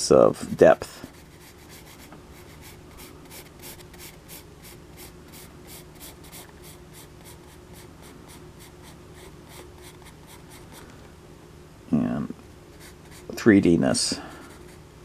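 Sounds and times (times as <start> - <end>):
pencil scratching on paper: 1.1 - 10.7, 12.7 - 13.3.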